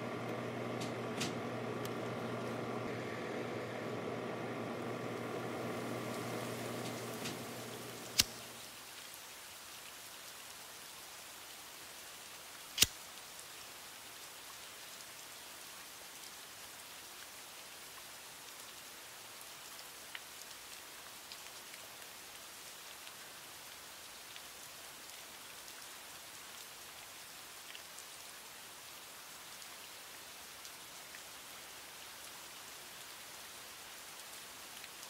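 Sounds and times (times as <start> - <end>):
soft hiss: 0.0 - 35.0
loud sharp clicks: 0.2 - 2.0, 5.3 - 8.6.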